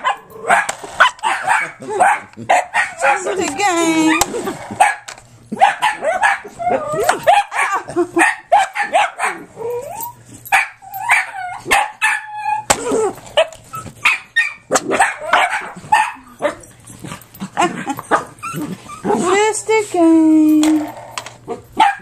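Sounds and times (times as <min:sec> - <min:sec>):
small dog barking and yipping: 0:00.0 - 0:12.7, 0:13.4 - 0:16.7, 0:21.5 - 0:22.0.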